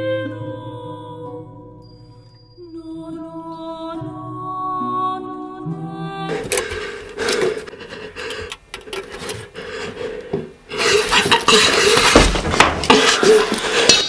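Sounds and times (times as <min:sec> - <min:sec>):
hand scraping over rock: 0:10.7 - 0:12.3.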